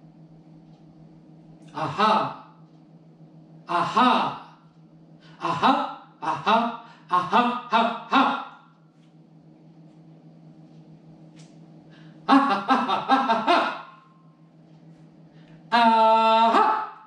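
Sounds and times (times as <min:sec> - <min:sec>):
faint low hum: 0:00.0 - 0:17.0
man vocal warm-up syllables: 0:01.7 - 0:02.4, 0:03.7 - 0:04.4, 0:05.4 - 0:08.6.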